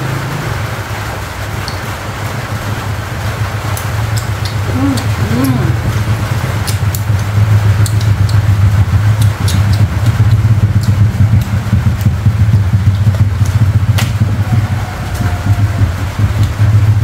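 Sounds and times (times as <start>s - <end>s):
sharp clicks: 3.7s - 5.6s, 6.5s - 12.2s.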